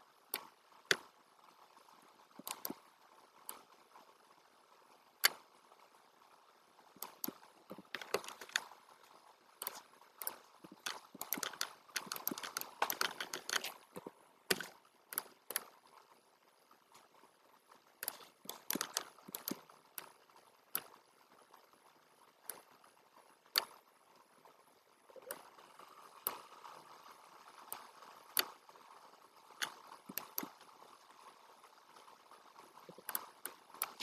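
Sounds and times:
computer mouse clicks: 0.3s - 4.1s, 5.2s - 5.6s, 6.9s - 15.8s, 18.0s - 21.0s, 22.4s - 22.8s, 23.5s - 23.8s, 25.2s - 34.0s
keyboard clicks: 2.4s - 2.8s, 7.0s - 8.8s, 9.6s - 15.7s, 18.0s - 20.1s, 29.5s - 30.8s.

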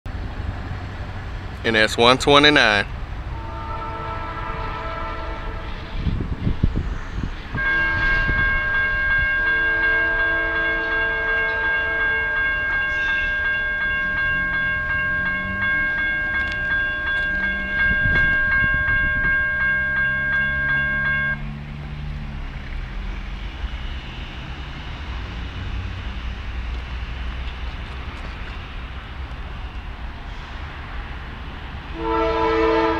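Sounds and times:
railroad crossing bell ringing: 1.0s - 30.4s, 31.9s - 32.9s
distant locomotive horn: 3.2s - 6.5s, 7.5s - 21.6s, 31.9s - 32.9s.

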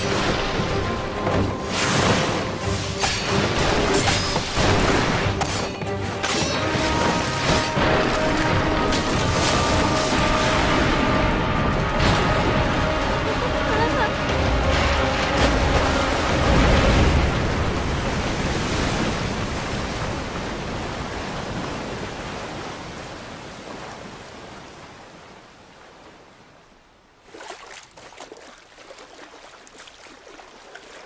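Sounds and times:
water crashing down: 0.0s - 23.0s
water splashing and sloshing: 0.0s - 31.0s.

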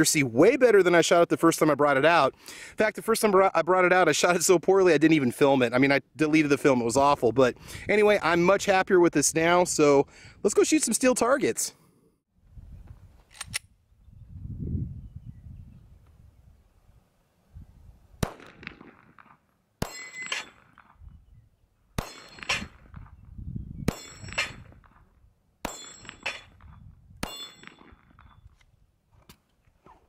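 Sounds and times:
pistol shots: 18.2s - 21.0s, 22.0s - 23.1s, 23.9s - 25.0s, 25.6s - 28.4s
steel target plate ringing: 19.8s - 20.8s, 22.0s - 22.9s, 23.9s - 24.8s, 25.6s - 28.5s.

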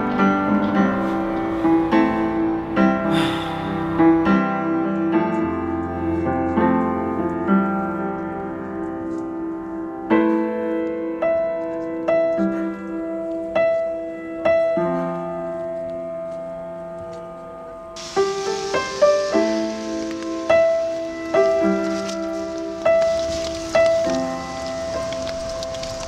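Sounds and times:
rain hissing: 0.0s - 6.1s, 18.0s - 26.0s
slow solo piano: 0.0s - 26.0s.

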